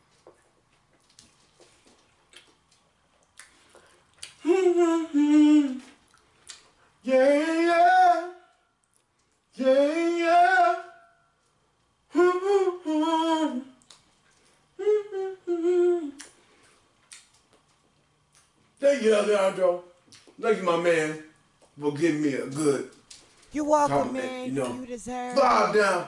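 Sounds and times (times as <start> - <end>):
man humming while eating: 4.3 - 6.0, 14.8 - 16.3, 23.6 - 26.0.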